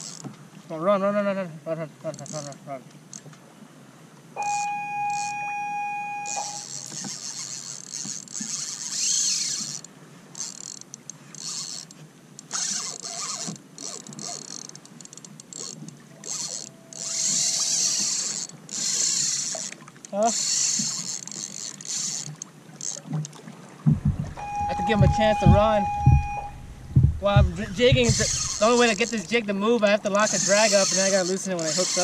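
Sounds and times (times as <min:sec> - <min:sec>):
fishing reel buzzing: 0:00.0 - 0:00.2, 0:04.4 - 0:05.4, 0:06.3 - 0:23.0, 0:28.0 - 0:29.4, 0:30.2 - 0:32.0
steady tone: 0:23.9 - 0:29.3.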